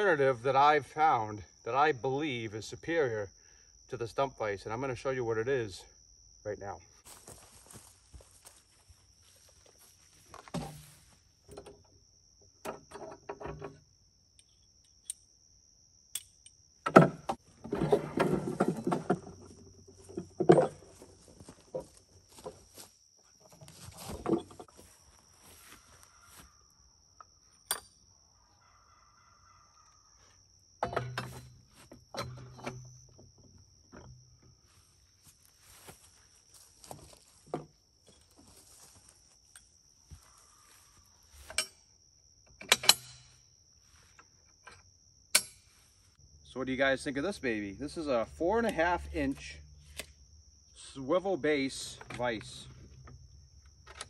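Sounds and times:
wood and steel clunks and scrapes: 10.2s - 11.9s, 12.5s - 13.9s, 16.8s - 22.7s, 23.4s - 24.9s, 30.8s - 34.6s, 41.2s - 41.9s.

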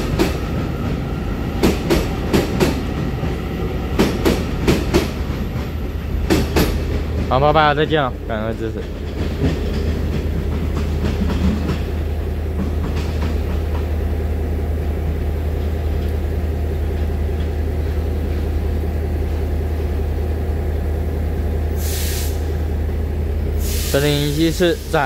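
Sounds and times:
train equipment hum: 0.0s - 25.0s
clacks: 8.5s - 11.9s
air release hiss: 21.8s - 22.5s, 23.6s - 25.0s.

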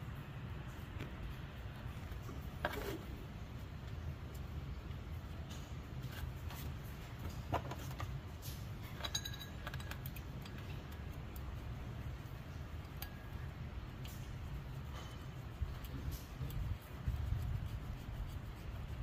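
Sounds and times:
steady low hum: 0.0s - 19.0s
metallic clinks and taps: 7.3s - 11.0s.

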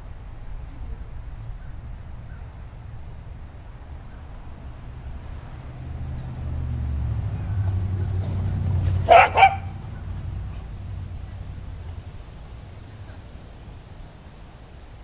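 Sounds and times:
dog barking: 9.0s - 10.2s.

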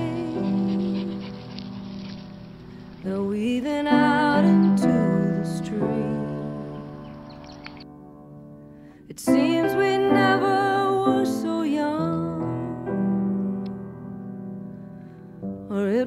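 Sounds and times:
background song music: 0.0s - 8.1s.

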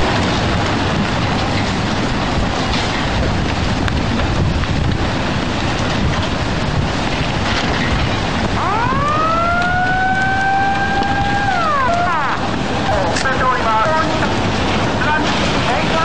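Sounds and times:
water surging and rushing: 0.0s - 16.0s
siren-like wail: 8.6s - 13.2s.

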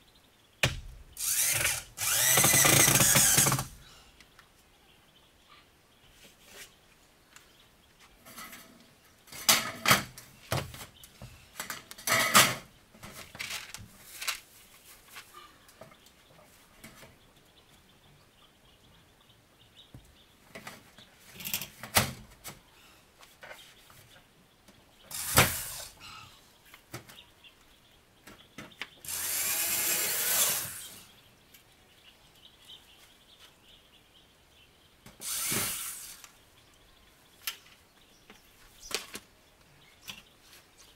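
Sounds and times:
sharp knocks on metal: 0.6s - 1.0s
cordless drill on sheet metal: 1.2s - 3.9s, 25.1s - 26.0s, 29.0s - 31.1s, 35.2s - 36.3s.

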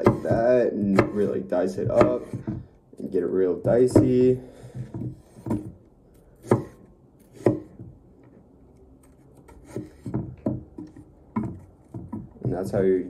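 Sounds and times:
knife chopping on cutting board: 0.0s - 2.7s, 6.4s - 7.9s, 9.5s - 12.7s.

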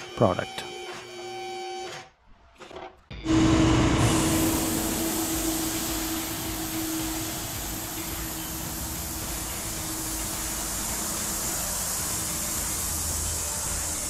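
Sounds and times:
machine hissing with hum: 3.3s - 14.0s.

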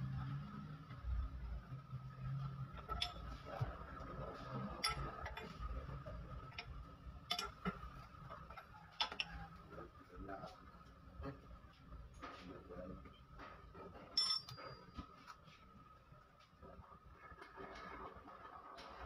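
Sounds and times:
hand tools tapping metal: 7.3s - 7.8s, 14.2s - 15.0s.

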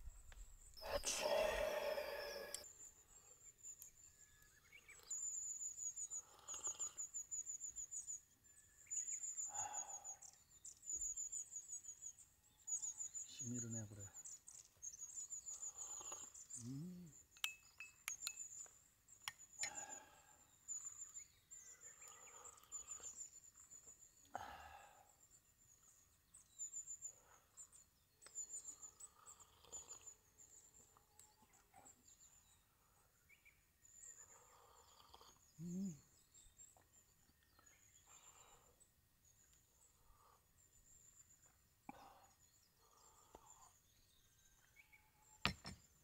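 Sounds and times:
bird calls: 0.8s - 25.0s.

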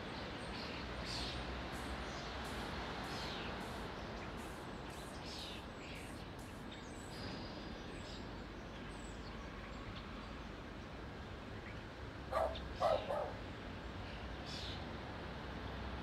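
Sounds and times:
outdoor background noise: 0.0s - 16.0s
bird chirps: 0.5s - 8.3s, 11.7s - 13.4s.

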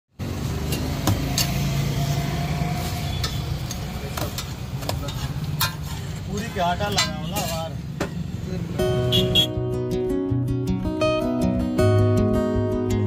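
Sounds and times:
low traffic rumble: 0.1s - 10.8s
flatbread sizzling on a griddle: 1.0s - 6.5s
metal spatula taps and scrapes: 3.2s - 8.2s.

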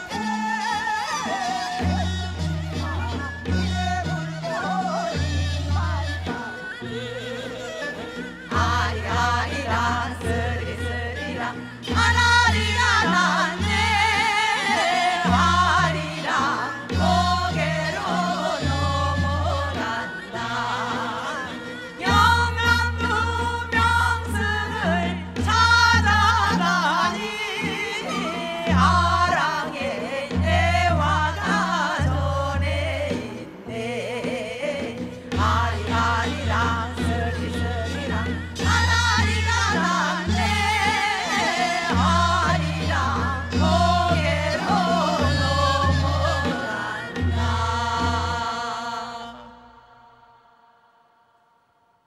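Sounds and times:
women singing folk song with vibrato: 0.0s - 51.4s.

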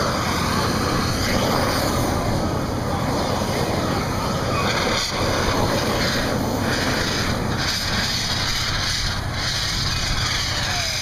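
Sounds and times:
open fire rumbling: 0.0s - 11.0s
fire extinguisher hissing: 4.2s - 11.0s.

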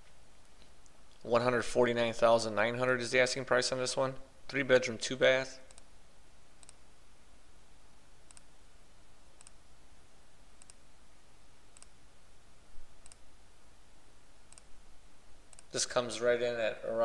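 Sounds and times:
faint low hum: 0.0s - 17.0s
computer mouse clicking: 5.7s - 5.9s, 6.6s - 6.8s, 8.3s - 8.5s, 9.4s - 9.6s, 10.6s - 10.8s, 11.7s - 12.0s, 13.0s - 13.2s, 14.5s - 14.7s, 15.5s - 15.7s.

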